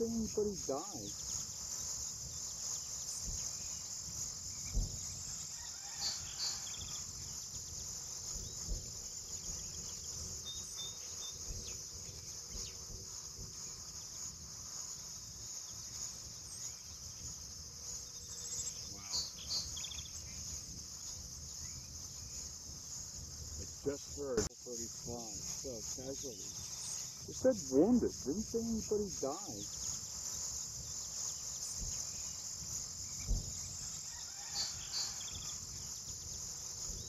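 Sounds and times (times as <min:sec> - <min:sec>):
crickets chirping: 0:00.0 - 0:37.0
distant dull booms: 0:04.6 - 0:05.1.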